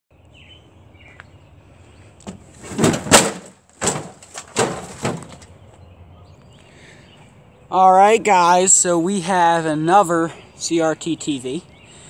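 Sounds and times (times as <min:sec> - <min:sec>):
plastic cabinet knocking on ground: 0:02.3 - 0:05.5.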